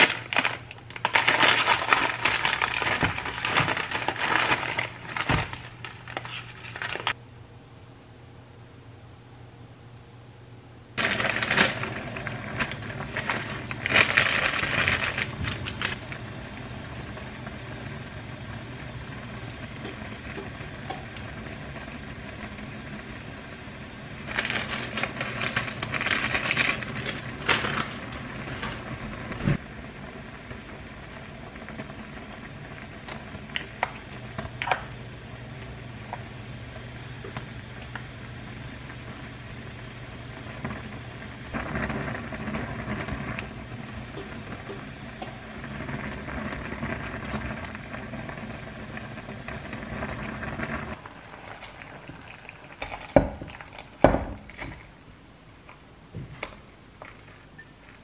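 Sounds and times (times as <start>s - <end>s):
plastic packets crinkling: 0.0s - 7.2s, 11.0s - 16.0s, 24.3s - 28.8s
steady low hum: 0.0s - 57.5s
water boiling in a saucepan: 11.0s - 58.0s.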